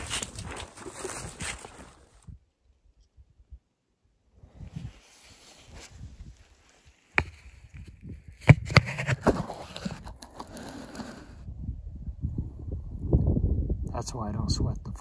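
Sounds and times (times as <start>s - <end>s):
camera handling rubbing: 7.1s - 11.4s.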